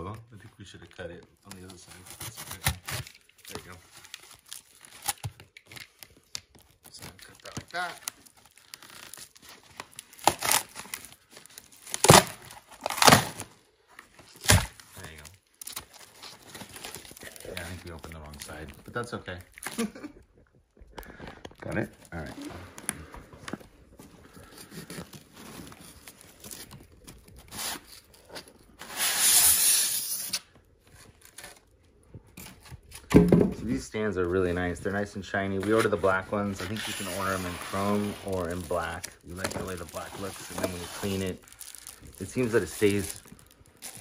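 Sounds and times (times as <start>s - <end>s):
plastic wrap crinkling and tearing: 0.3s - 33.1s, 34.8s - 44.0s
cardboard rustling: 21.2s - 29.1s, 34.6s - 44.0s
styrofoam scraping against cardboard: 28.7s - 30.5s, 35.6s - 41.4s, 42.2s - 43.2s.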